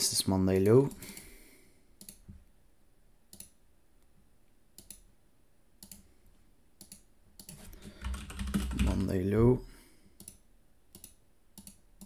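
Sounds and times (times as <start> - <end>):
computer mouse clicking: 2.0 - 2.3, 3.3 - 3.6, 4.8 - 5.1, 5.8 - 6.1, 6.8 - 9.1, 10.2 - 12.0.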